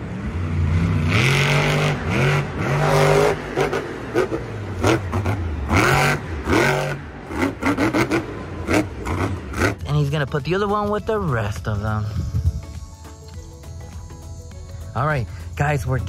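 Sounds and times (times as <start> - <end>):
truck engine revving hard: 0.0 - 9.9.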